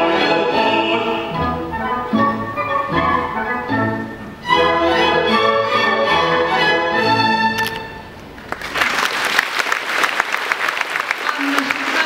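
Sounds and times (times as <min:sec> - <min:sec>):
symphony orchestra playing: 0:00.0 - 0:08.3
audience applause: 0:08.4 - 0:12.0.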